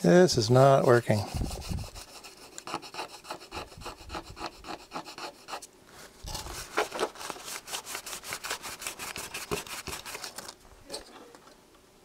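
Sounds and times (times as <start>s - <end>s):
scrubbing on plastic: 6.0s - 10.6s.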